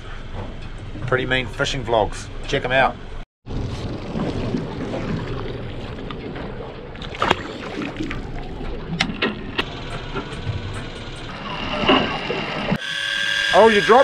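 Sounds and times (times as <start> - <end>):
low engine rumble: 0.0 - 12.8
wind: 0.0 - 14.0
water wash: 3.5 - 12.8.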